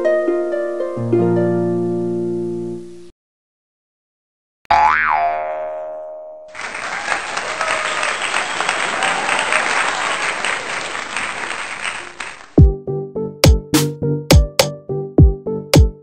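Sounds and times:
crowd applause: 6.5 - 12.6
electronic drum beat: 13.4 - 16.0.

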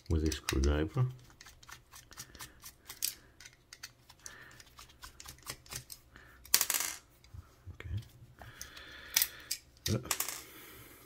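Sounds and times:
screwdriver small clicks and ticks: 0.1 - 6.0.

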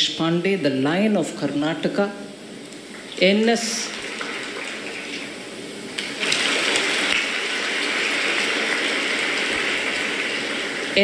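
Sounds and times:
audience applauding: 6.2 - 11.0.

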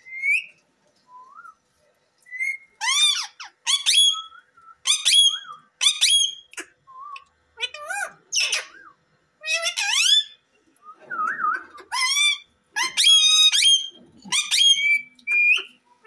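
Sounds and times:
parakeets whistle-like calls: 2.4 - 6.6, 7.6 - 10.4, 11.5 - 15.8.

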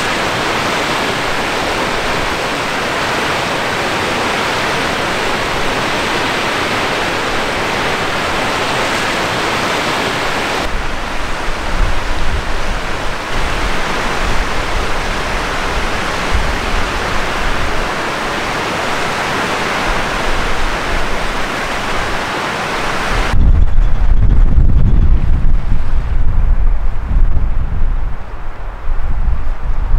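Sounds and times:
wind buffeting microphone: 0.0 - 18.0, 22.9 - 29.9
fast river water rushing: 0.0 - 23.4.

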